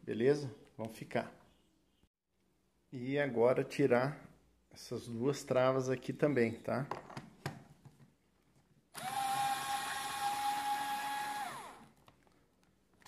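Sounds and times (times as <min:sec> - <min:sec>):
electric screwdriver motor whine: 0:09.0 - 0:11.9.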